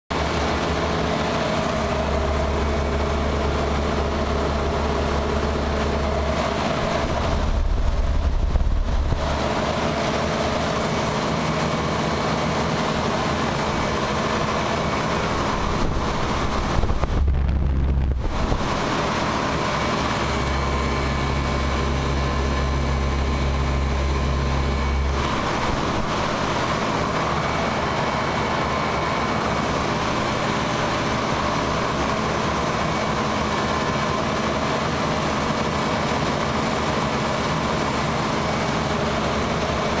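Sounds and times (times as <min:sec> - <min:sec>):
heat pump fan air rush: 0:00.1 - 0:40.0
machine hum: 0:00.1 - 0:40.0
deep rumble: 0:01.2 - 0:10.6, 0:13.1 - 0:30.5.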